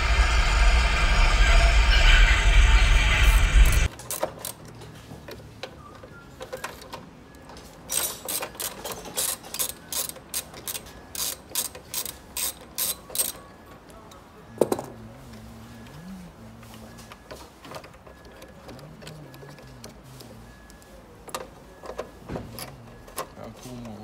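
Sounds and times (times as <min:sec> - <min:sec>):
ratchet wrench clicking: 0:07.9 - 0:13.4.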